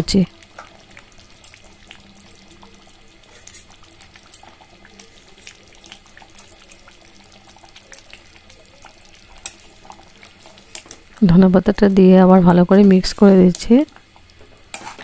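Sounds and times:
curry bubbling and popping: 0.1 - 15.0
metal spatula stirring: 14.6 - 15.0.

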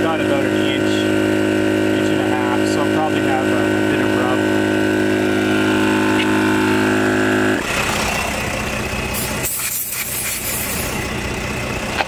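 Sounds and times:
air compressor motor humming: 0.0 - 12.0
air hissing: 9.1 - 11.0.

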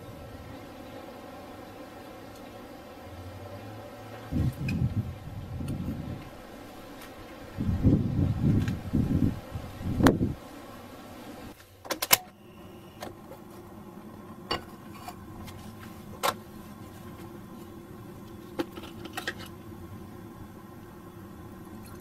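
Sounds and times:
gas flame hissing: 4.0 - 11.6.

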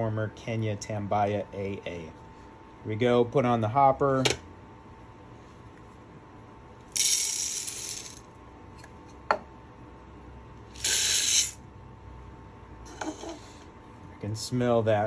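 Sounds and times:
coffee beans pouring rattle: 6.9 - 8.2, 10.8 - 11.6.

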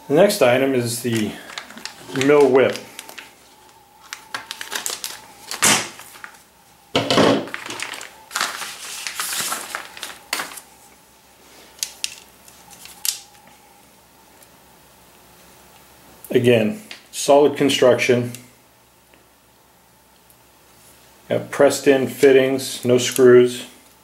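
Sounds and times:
plastic packaging crinkling: 0.8 - 10.8.

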